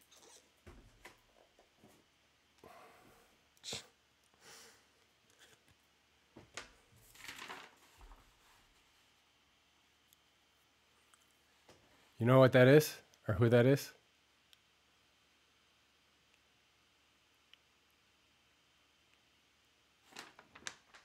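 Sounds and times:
paper and cards rustling: 6.4s - 9.0s, 20.0s - 21.0s.

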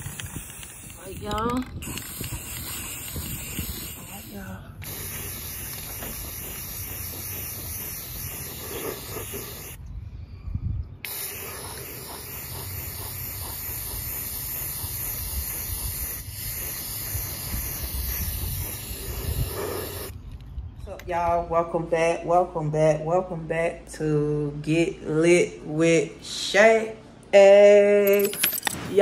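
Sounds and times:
spray-paint can hissing: 0.0s - 9.8s, 11.0s - 20.1s.

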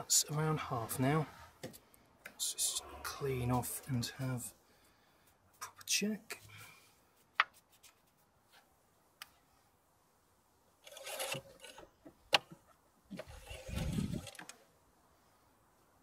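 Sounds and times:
dipstick rubbing and scraping: 13.1s - 14.5s.

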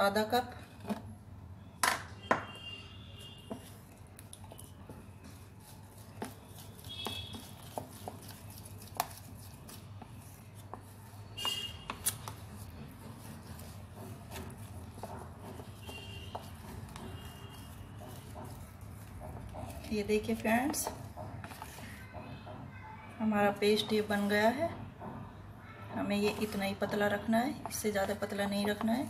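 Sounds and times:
spatula stirring batter in bowl: 2.4s - 29.0s
taps and scrapes on bowl: 13.0s - 22.7s.

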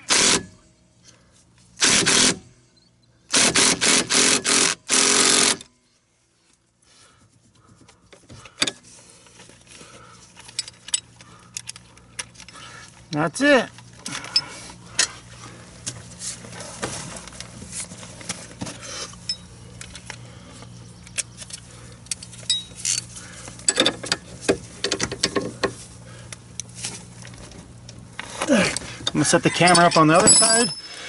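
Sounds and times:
metallic clinks of hand tools: 29.5s - 31.0s.

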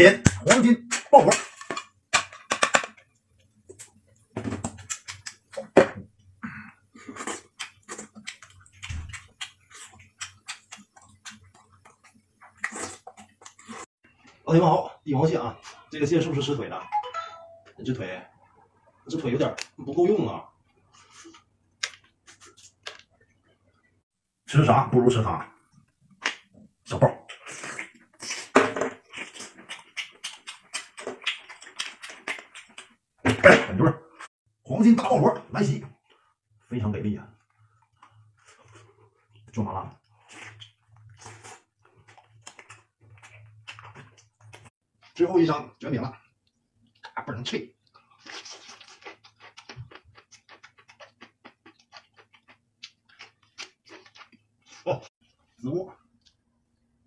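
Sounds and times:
wet chewing and lip-smacking: 3.4s - 5.8s, 7.0s - 13.9s, 27.3s - 33.0s, 40.2s - 44.7s, 47.8s - 55.5s
crisp crunching while eating: 48.2s - 55.0s.

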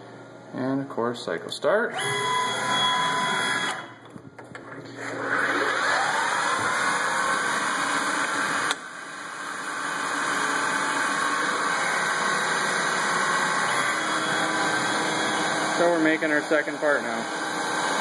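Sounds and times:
lathe mechanical hum: 9.4s - 18.0s.

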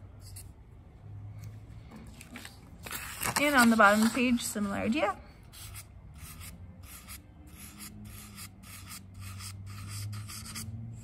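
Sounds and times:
marker scratching on paper: 5.5s - 11.0s.

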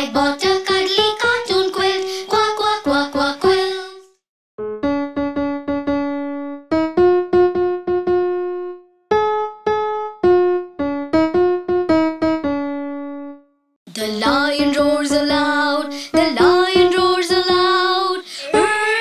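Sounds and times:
children's song with keyboard: 0.0s - 4.2s, 13.9s - 19.0s
keyboard playing simple melody: 4.6s - 13.6s.

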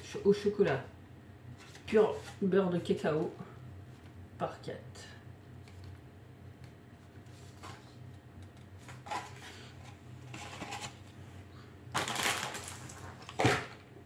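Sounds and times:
packaging crinkling: 11.9s - 13.8s.

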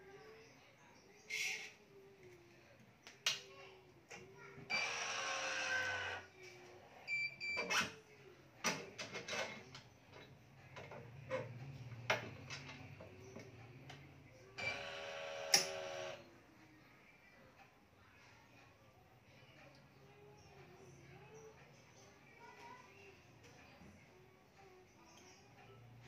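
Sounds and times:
sharp clicks from clamps and tools: 15.5s - 15.8s.

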